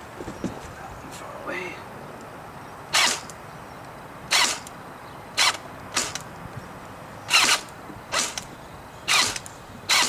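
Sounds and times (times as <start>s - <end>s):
airsoft gun shots: 3.0s - 3.3s, 4.3s - 4.7s, 5.4s - 6.2s, 7.3s - 8.4s.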